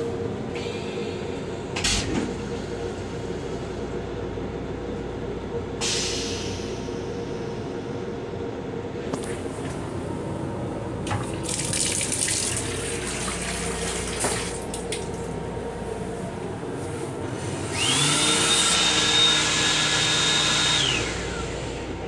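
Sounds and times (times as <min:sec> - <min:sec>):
water running into sink: 0:11.0 - 0:15.2
electric hand dryer whine: 0:17.5 - 0:21.9.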